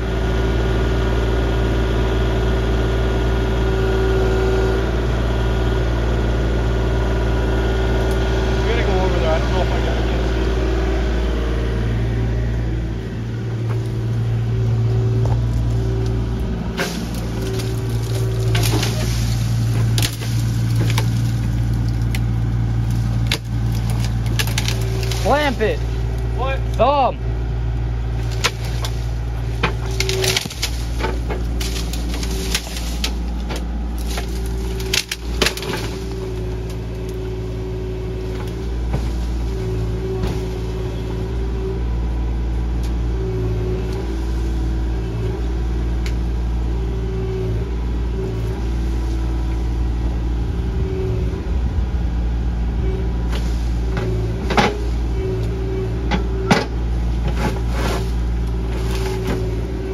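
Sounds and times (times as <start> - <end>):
excavator engine running: 0.0 - 59.9
hydraulic whine: 0.0 - 59.9
branches cracking and snapping: 12.9 - 27.0, 27.8 - 47.2, 53.2 - 59.9.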